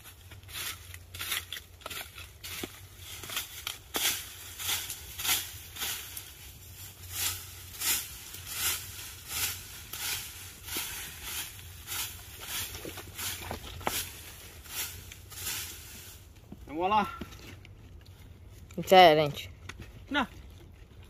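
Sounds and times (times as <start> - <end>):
rake scraping dry leaves: 0.0 - 16.8.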